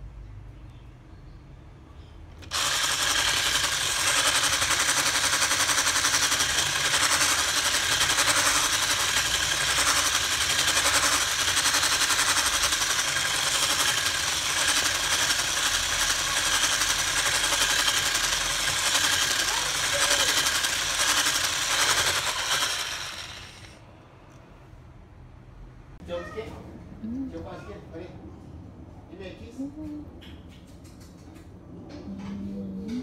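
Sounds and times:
electric whisk beating batter: 0:02.4 - 0:23.8.

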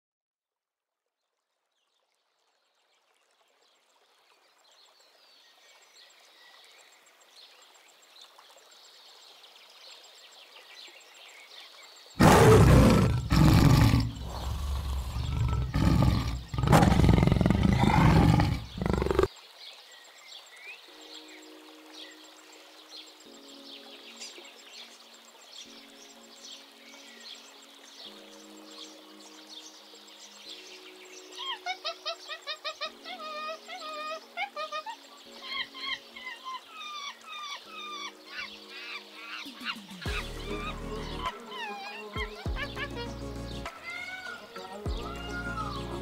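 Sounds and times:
faint wildlife ambience: 0:01.1 - 0:46.0
tiger roaring and growling: 0:12.2 - 0:19.3.

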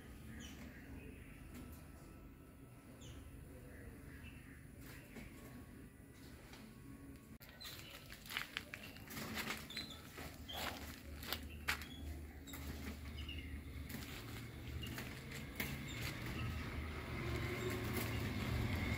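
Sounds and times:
rustles and clicks: 0:07.4 - 0:18.9.

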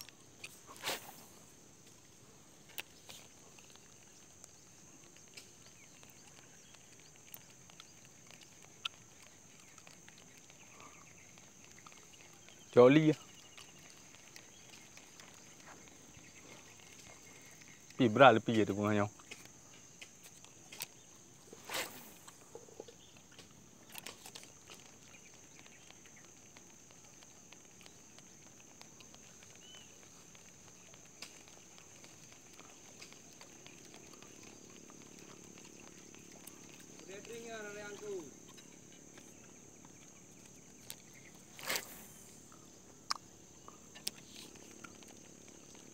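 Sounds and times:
faint ticks: 0:00.0 - 0:45.9
high-pitched insect drone: 0:34.1 - 0:45.0.

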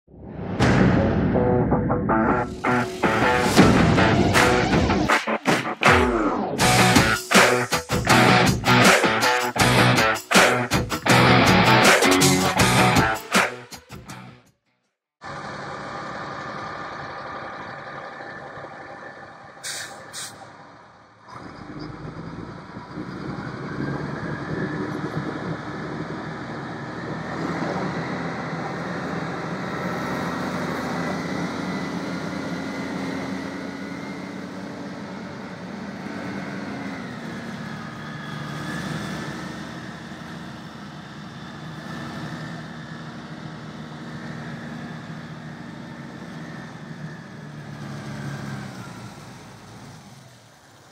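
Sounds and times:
truck diesel engine running: 0:00.6 - 0:13.2, 0:15.2 - 0:50.9
short sharp hisses: 0:19.6 - 0:20.5.

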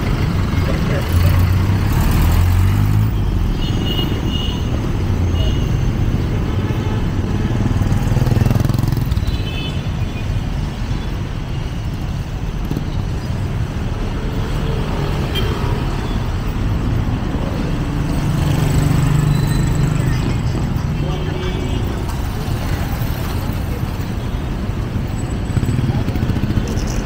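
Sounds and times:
vehicle engines running: 0:00.0 - 0:03.5, 0:04.7 - 0:09.4, 0:11.8 - 0:27.0
street din: 0:00.0 - 0:27.0.

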